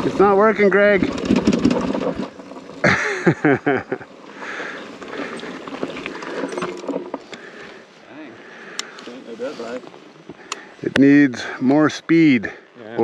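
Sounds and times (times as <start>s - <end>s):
motorcycle rolling and clattering: 0.0s - 7.7s.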